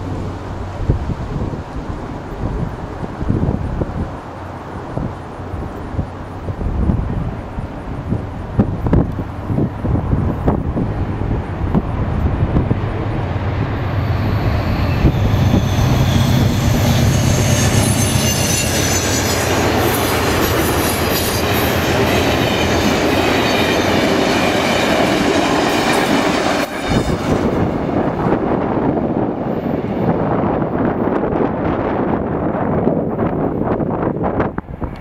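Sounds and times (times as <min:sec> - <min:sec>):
passenger train passing: 0:00.0 - 0:35.0
wheels on rail: 0:00.0 - 0:35.0
high ringing wheel tones: 0:13.9 - 0:24.0.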